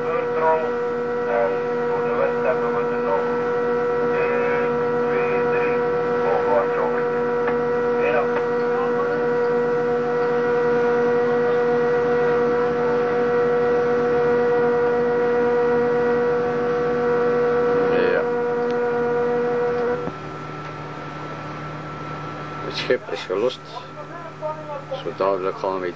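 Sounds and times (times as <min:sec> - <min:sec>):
ship machinery droning: 0:00.0 - 0:25.9.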